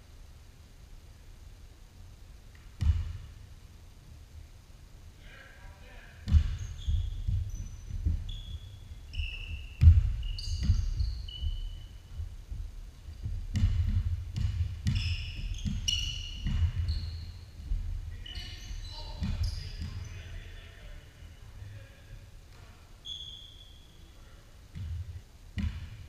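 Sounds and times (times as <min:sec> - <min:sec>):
basketball bouncing: 0:02.5 - 0:03.4, 0:06.2 - 0:18.0, 0:18.6 - 0:20.1, 0:24.7 - 0:26.0
sneaker squeaks: 0:06.3 - 0:12.2, 0:13.5 - 0:20.5, 0:22.5 - 0:26.0.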